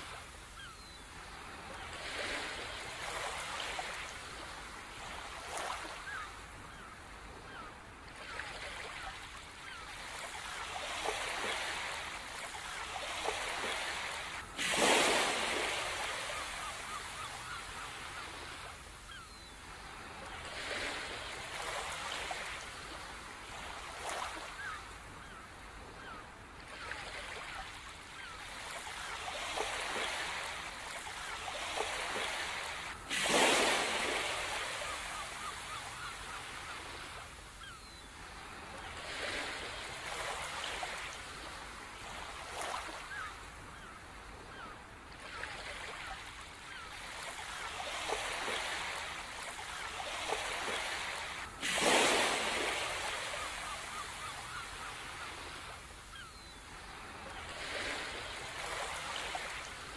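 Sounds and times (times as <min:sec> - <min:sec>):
faint bird calls: 0:00.0 - 0:59.8
sea waves washing: 0:10.0 - 0:18.6, 0:28.2 - 0:37.2, 0:46.7 - 0:55.8.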